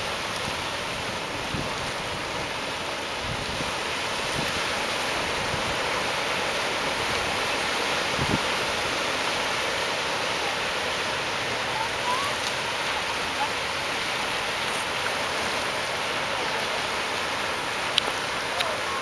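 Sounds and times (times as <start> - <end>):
ocean surf breaking: 0.0 - 19.0.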